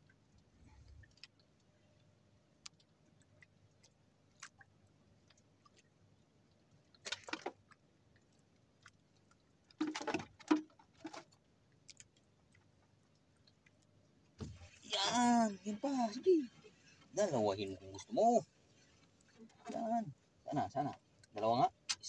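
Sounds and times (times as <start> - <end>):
faint clicks of fishing hooks: 1.0 - 1.7.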